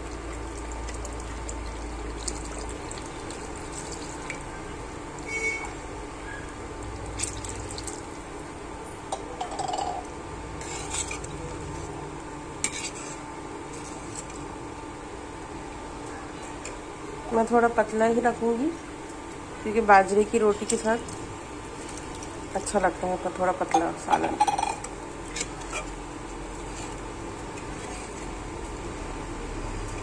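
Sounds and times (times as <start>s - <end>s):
water pouring into a pot: 0.0s - 4.6s, 7.0s - 8.3s.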